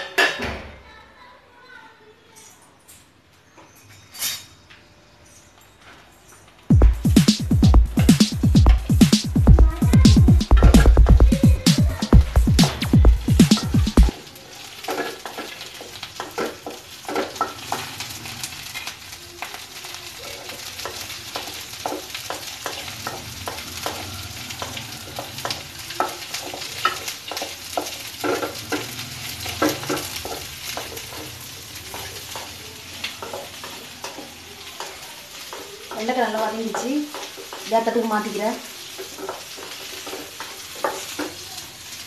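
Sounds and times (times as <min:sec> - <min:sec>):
burst of music: 0:06.7 - 0:14.1
okra sizzling in hot oil: 0:12.2 - 0:42.0
wooden spatula scraping a pan: 0:14.7 - 0:19.0, 0:20.4 - 0:42.0.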